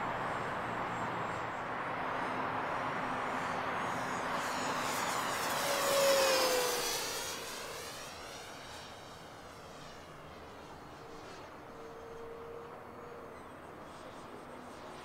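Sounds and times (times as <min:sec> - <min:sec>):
model plane motor whining past: 0:03.0 - 0:15.0.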